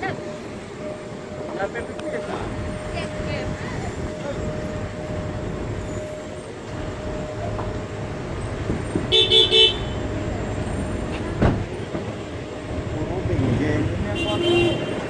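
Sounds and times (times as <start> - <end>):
vehicle horn beeping: 9.1 - 10.1, 14.0 - 15.0.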